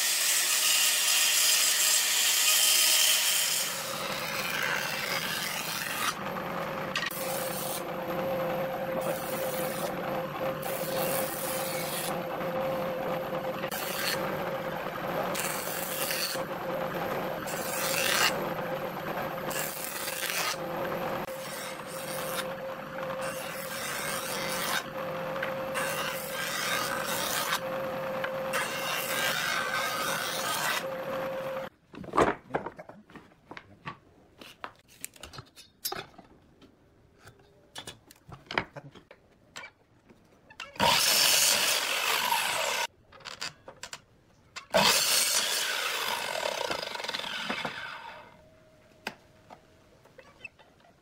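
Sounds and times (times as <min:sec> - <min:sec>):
cutterhead shaving wood: 0:00.0 - 0:31.7, 0:40.8 - 0:42.9, 0:44.7 - 0:48.3
jointer motor hum: 0:03.7 - 0:31.7.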